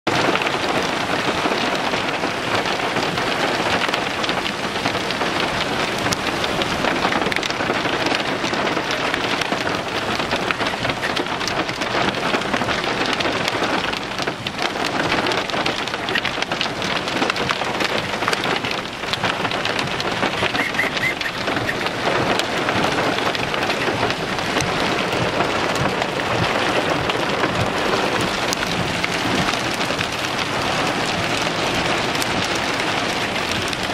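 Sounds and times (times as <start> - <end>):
hailstones clattering: 0.1 - 33.9.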